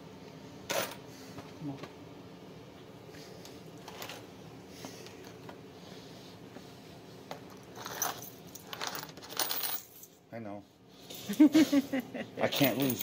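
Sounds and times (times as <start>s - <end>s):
room hum: 0.0s - 13.0s
small metal items clinking: 7.7s - 10.2s, 12.5s - 13.0s.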